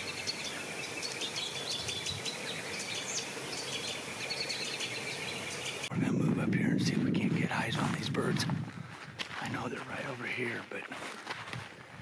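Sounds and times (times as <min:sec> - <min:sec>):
small birds chirping: 0:00.0 - 0:05.9
steady background hiss: 0:00.0 - 0:08.2.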